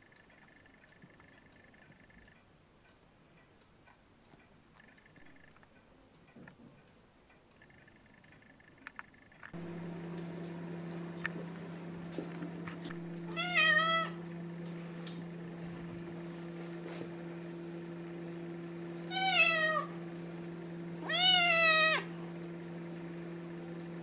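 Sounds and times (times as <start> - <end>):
steady low hum: 0.0 - 24.0
cat meowing: 13.3 - 14.2, 19.1 - 19.9, 21.0 - 22.1.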